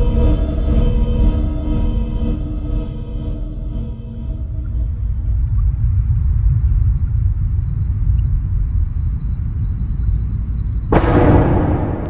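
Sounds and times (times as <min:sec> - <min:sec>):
deep steady rumble: 0:04.1 - 0:12.0.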